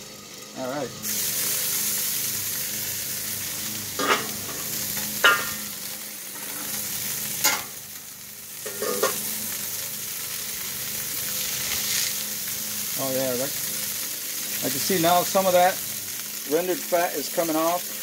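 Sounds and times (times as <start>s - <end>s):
patties sizzling on griddle: 0.0s - 18.0s
metal clanks and scrapes: 4.0s - 5.6s, 8.6s - 9.2s.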